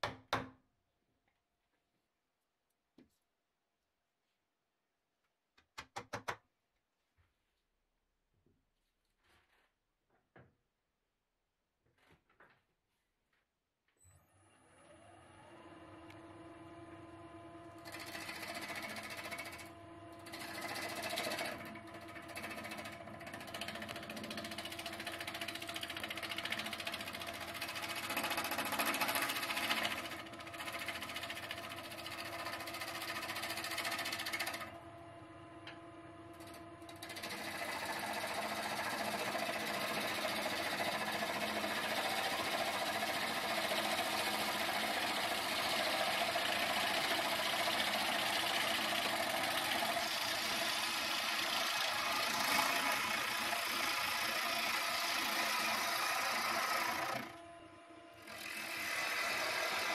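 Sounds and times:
lathe motor humming: 15.4s - 59.9s
gouge cutting spinning wood: 17.8s - 34.8s, 36.3s - 57.5s, 58.2s - 59.9s.

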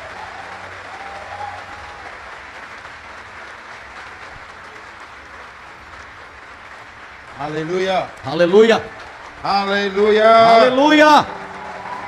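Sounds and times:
congregation applauding: 0.0s - 12.0s.

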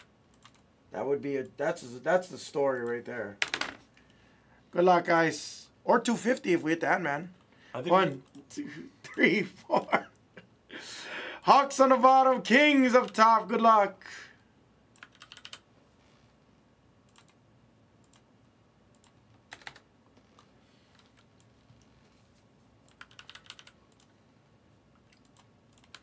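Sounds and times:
computer keyboard typing: 0.0s - 0.7s, 2.8s - 3.8s, 14.9s - 15.7s, 17.1s - 17.4s, 18.0s - 18.3s, 18.9s - 21.9s, 22.8s - 24.2s, 25.0s - 26.0s.

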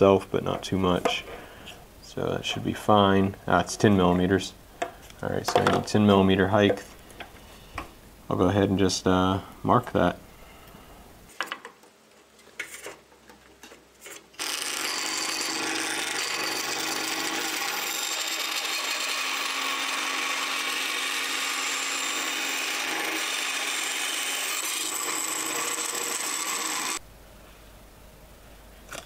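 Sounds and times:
band saw cutting wood: 14.4s - 27.0s.

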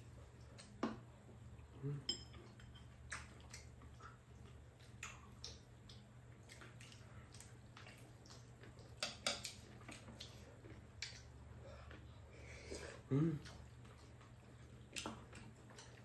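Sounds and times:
wet mouth sounds: 4.8s - 10.4s.

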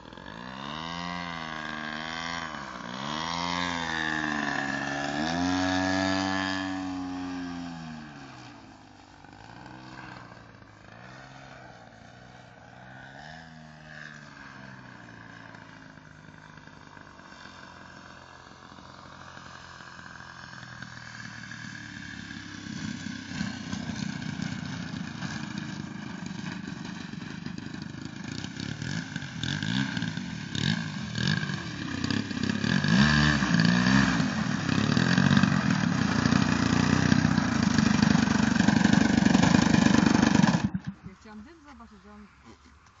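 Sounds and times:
model plane engine passing overhead: 0.0s - 43.0s
engine idling rough and low: 13.7s - 43.0s.

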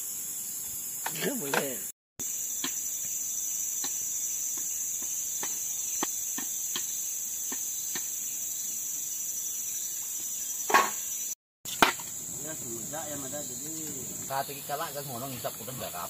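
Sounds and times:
insect chorus drone: 0.0s - 16.0s.

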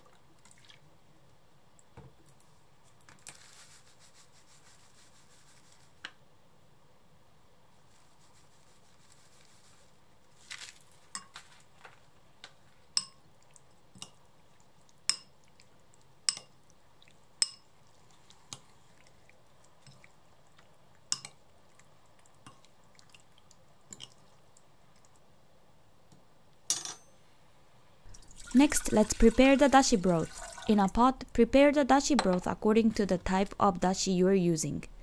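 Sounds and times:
metal spoon clinking glass bowl: 17.4s - 17.7s.

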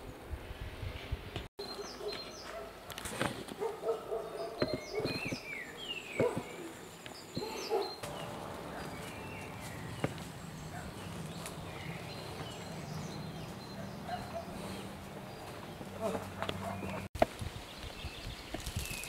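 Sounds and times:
birds chirping: 1.6s - 2.7s, 3.6s - 19.0s
footsteps on stony trail: 7.4s - 19.0s.

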